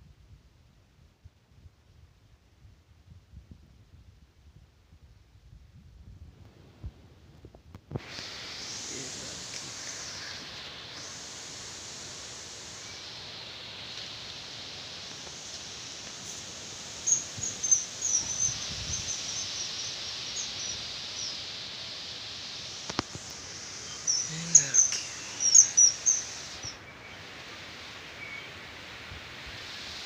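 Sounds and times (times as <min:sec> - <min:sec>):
storm wind through plants: 0:00.0 - 0:30.0
small birds chirping: 0:15.0 - 0:21.5, 0:22.4 - 0:27.2.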